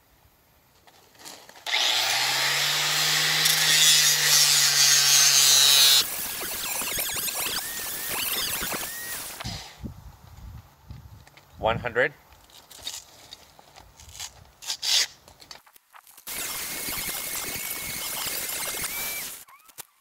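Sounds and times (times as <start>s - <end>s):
angle grinder sanding stone: 1.8s - 9.7s, 16.3s - 19.4s.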